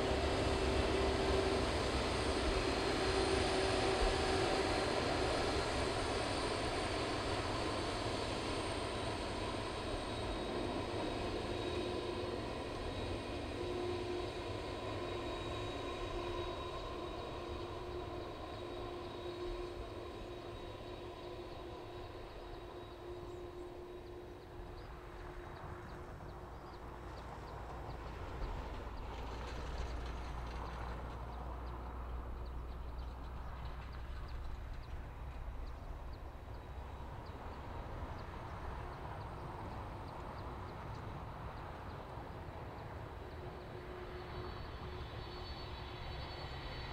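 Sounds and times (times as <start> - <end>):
jet engines whining: 0.0 - 26.6.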